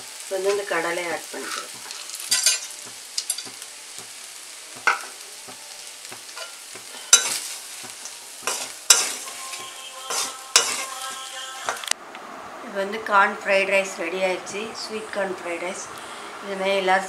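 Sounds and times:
frying sizzle: 0.0s - 12.0s
spatula scraping and clanking pan: 0.5s - 11.8s.

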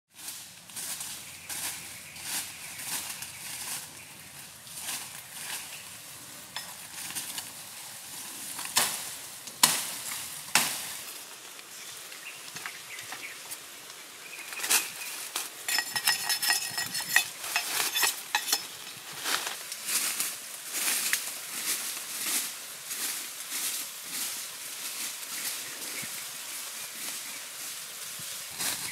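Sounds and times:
dry bamboo leaves rustling: 0.1s - 28.9s
bamboo stems snapping: 8.6s - 11.0s.

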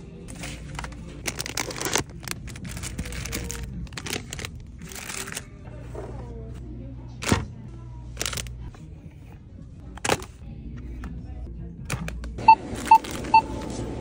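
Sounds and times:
plastic bags crinkling: 0.3s - 5.6s, 8.2s - 8.5s.

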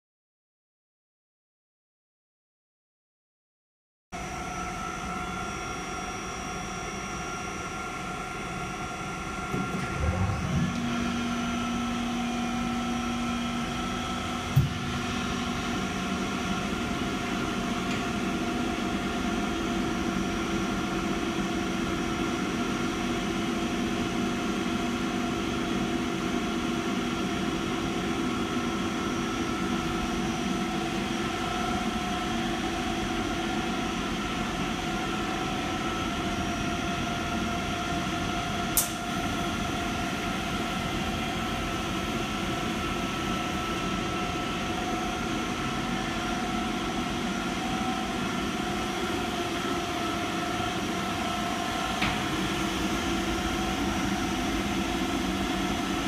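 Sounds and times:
air compressor humming: 8.9s - 20.3s, 38.7s - 56.0s
sharp click: 38.8s - 39.0s.

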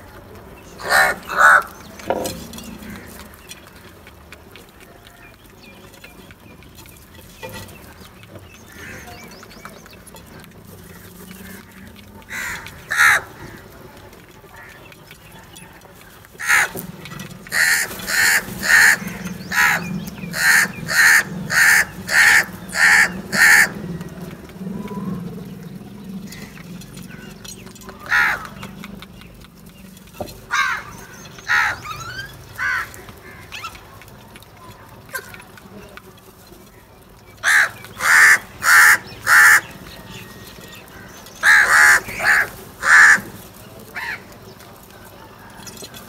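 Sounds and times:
crows cawing: 0.8s - 1.8s, 8.7s - 9.3s, 10.8s - 13.8s, 16.4s - 16.8s, 17.5s - 24.1s, 26.3s - 28.7s, 30.5s - 33.7s, 37.4s - 39.8s, 40.8s - 44.3s.

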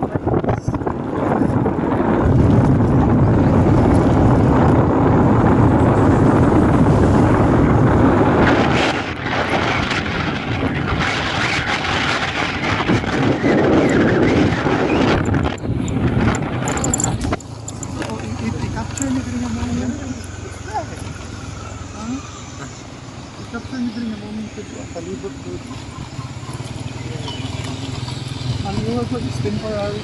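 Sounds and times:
wind rushing: 0.0s - 20.4s
motorcycle engine: 0.0s - 30.0s.

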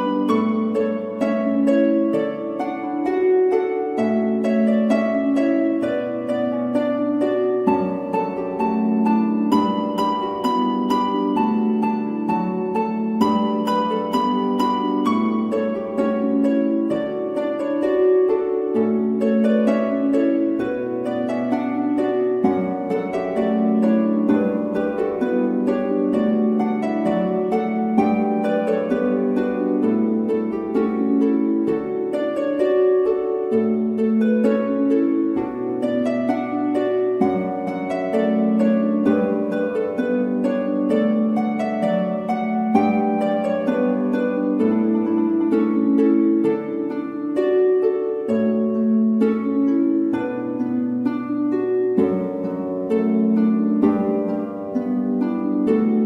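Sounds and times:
plucked string notes: 0.0s - 56.0s.

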